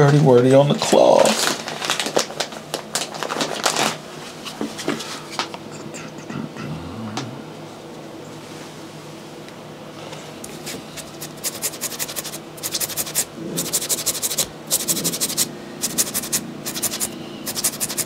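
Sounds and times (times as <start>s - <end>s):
sponge scrubbing a sneaker: 11.0s - 18.0s.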